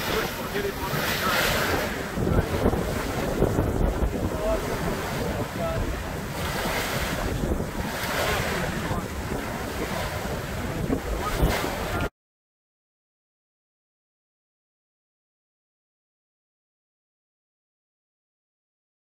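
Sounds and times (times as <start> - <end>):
water splashing along hull: 0.0 - 12.1
wind buffeting microphone: 0.0 - 12.1.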